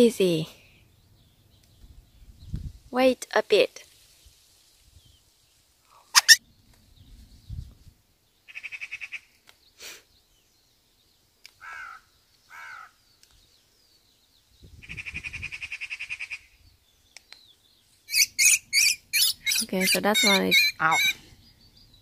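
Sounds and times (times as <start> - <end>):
young thrush distress calls: 6.1 - 6.4, 18.1 - 21.9.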